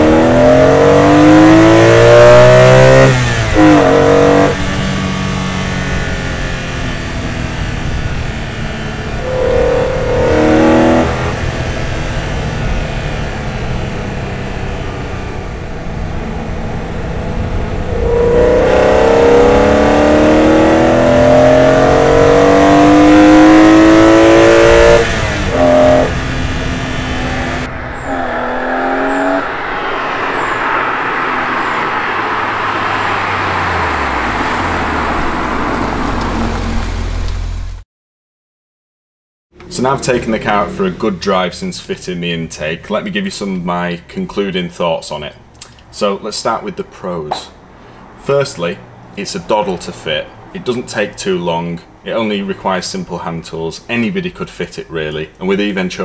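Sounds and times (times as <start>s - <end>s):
car engine accelerating: 0.0s - 37.8s, 39.6s - 42.1s
road noise: 0.0s - 37.8s, 39.5s - 56.0s.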